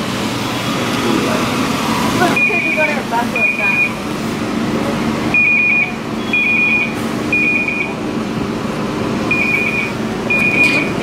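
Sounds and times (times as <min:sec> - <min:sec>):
low store hum: 0:00.0 - 0:11.0
security alarm beeping: 0:03.4 - 0:04.0, 0:05.3 - 0:07.9, 0:09.3 - 0:10.8.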